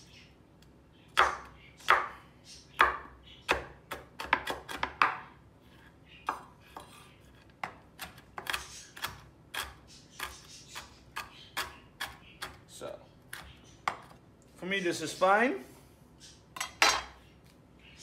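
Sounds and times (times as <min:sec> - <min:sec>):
knife chopping nuts on wood: 0:01.2 - 0:02.2, 0:02.8 - 0:05.2, 0:07.6 - 0:12.6.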